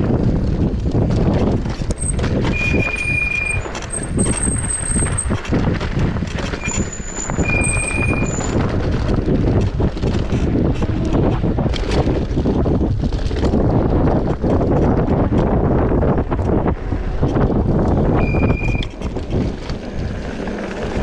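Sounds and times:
electric bike rattling: 0:00.0 - 0:21.0
wind on microphone: 0:00.0 - 0:21.0
high-pitched squeals: 0:02.0 - 0:05.3, 0:06.6 - 0:08.6, 0:18.2 - 0:19.0.

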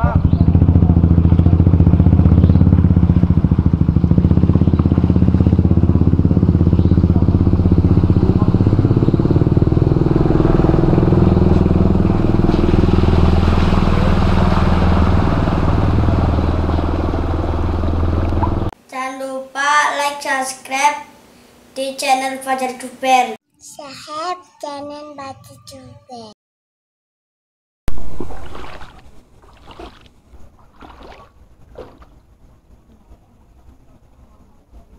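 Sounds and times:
vehicle engine running: 0:00.0 - 0:18.8.

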